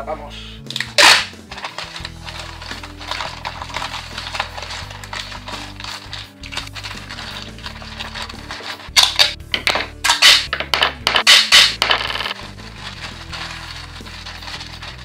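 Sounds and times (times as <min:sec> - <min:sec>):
newspaper crinkling and rustling: 0:01.4 - 0:09.0, 0:12.3 - 0:15.0.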